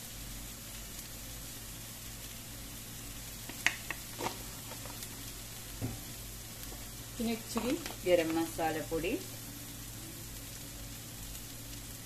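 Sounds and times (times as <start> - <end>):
food sizzling in a pan: 0.0 - 12.0.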